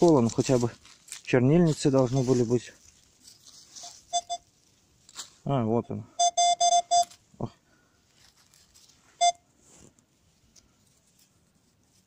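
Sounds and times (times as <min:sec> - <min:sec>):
soil scraping: 0:00.0 - 0:05.5
metal detector beep: 0:03.8 - 0:04.5, 0:05.8 - 0:07.2, 0:09.2 - 0:09.4.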